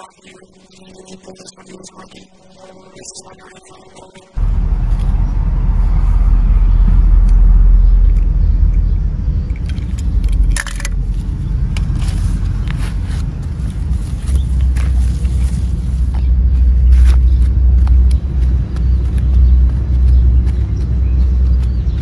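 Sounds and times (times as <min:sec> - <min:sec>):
wind buffeting microphone: 0:04.4 - 0:22.0
leaves rustling: 0:11.0 - 0:19.3.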